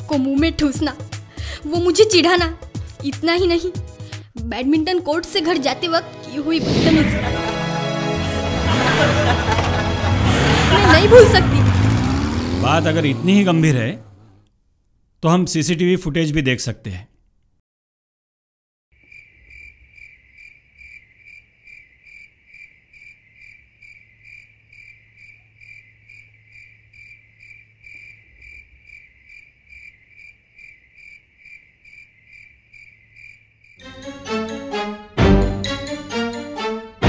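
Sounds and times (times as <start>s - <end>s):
loud music: 6.4s - 12.6s, 33.8s - 37.0s
cricket chirping: 19.0s - 33.8s.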